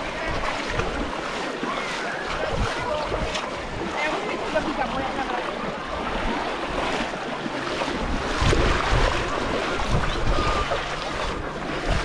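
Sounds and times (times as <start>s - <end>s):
feet splashing through water: 0.0s - 12.0s
wind buffeting microphone: 0.0s - 12.0s.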